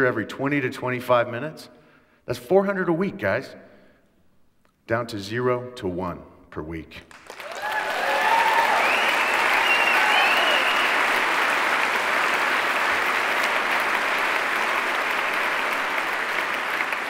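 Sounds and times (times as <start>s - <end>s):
large audience applauding: 7.1s - 17.0s
voices cheering: 7.4s - 17.0s.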